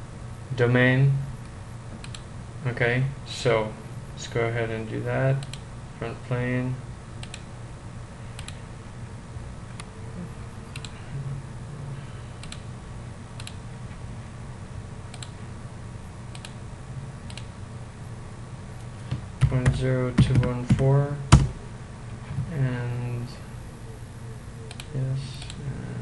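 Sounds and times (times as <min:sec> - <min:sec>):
low room hum: 0:00.0 - 0:26.0
computer mouse clicks: 0:01.9 - 0:02.3, 0:05.4 - 0:05.6, 0:07.2 - 0:07.5, 0:08.4 - 0:08.6, 0:10.7 - 0:11.0, 0:12.4 - 0:12.7, 0:13.4 - 0:13.6, 0:15.1 - 0:15.4, 0:16.3 - 0:16.6, 0:17.3 - 0:17.5, 0:24.7 - 0:25.6.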